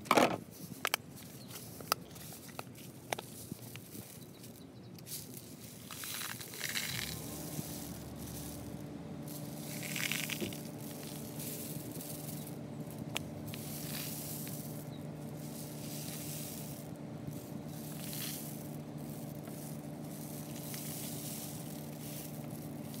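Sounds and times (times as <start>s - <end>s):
rainstick trickling hiss: 5.1s - 23.0s
low hum: 6.5s - 23.0s.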